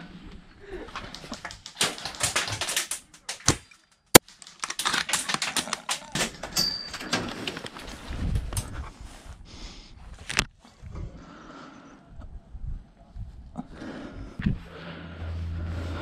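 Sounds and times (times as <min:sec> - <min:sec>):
footsteps and gear clattering: 0:01.0 - 0:08.8.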